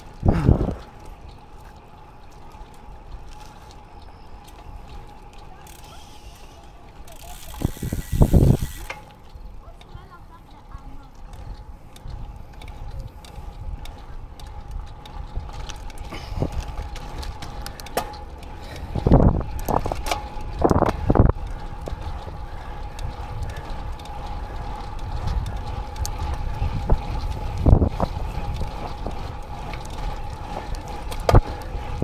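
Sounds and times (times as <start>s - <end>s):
bike tyre noise: 0.0s - 32.0s
wind on microphone: 0.2s - 1.0s, 7.5s - 8.9s, 18.8s - 32.0s.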